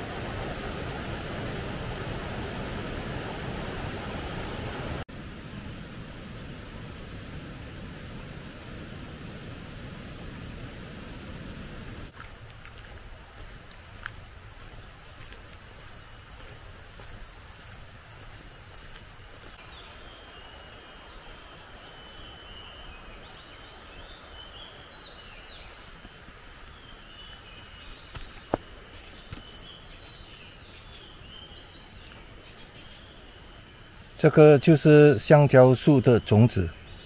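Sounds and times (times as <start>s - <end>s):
low steady rush: 0.0s - 12.1s
insects chirring: 12.1s - 37.0s.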